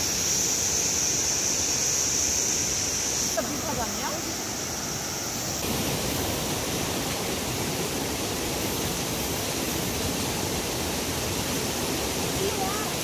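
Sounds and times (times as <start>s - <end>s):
stream rushing over rocks: 0.0s - 13.0s.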